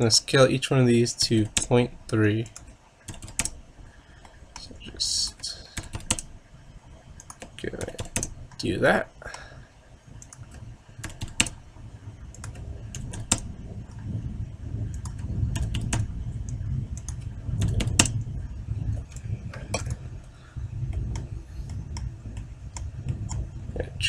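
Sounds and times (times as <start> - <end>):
keyboard keystrokes and clicks: 1.4 - 1.8, 2.4 - 3.6, 4.2 - 6.3, 7.2 - 8.6, 10.2 - 11.6, 12.3 - 14.0, 14.9 - 18.2, 19.0 - 20.0
low rumble: 3.5 - 24.0.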